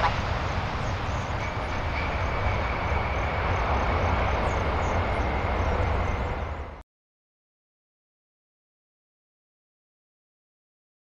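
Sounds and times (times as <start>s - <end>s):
jet engines roaring: 0.0s - 6.8s.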